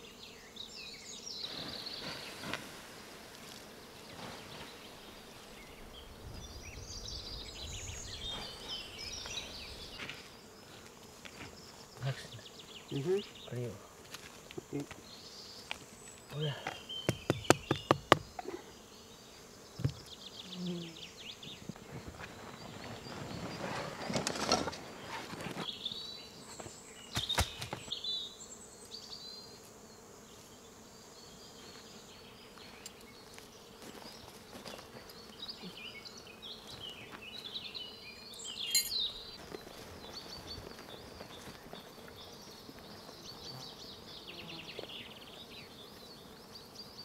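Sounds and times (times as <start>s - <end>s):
insect buzzing: 0.0s - 47.0s
small birds chirping: 4.0s - 47.0s
camp gear rustling and knocking: 38.6s - 41.4s.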